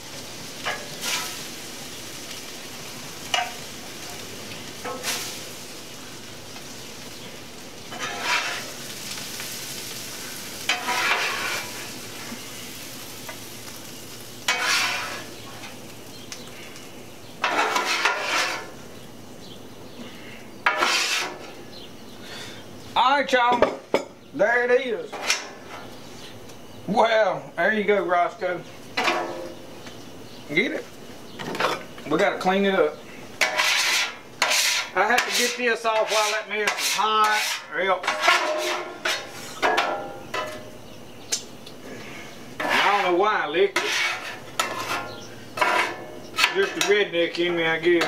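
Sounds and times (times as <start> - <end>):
fish fillets sizzling on griddle: 0.0 - 21.8, 31.8 - 41.2, 42.0 - 48.0
metal spatula scraping steel: 0.6 - 1.4, 7.9 - 8.8, 10.6 - 11.9, 14.5 - 15.8, 17.4 - 18.8, 20.6 - 21.6, 25.0 - 25.9, 29.0 - 29.5, 33.4 - 40.7, 42.6 - 47.1.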